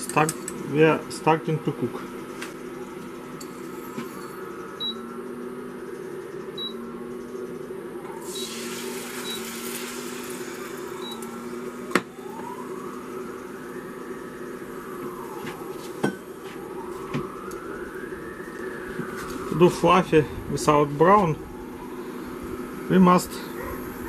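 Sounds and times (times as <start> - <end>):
cooktop fan hum: 0.0 - 24.0
eggs sizzling in pan: 8.2 - 11.9.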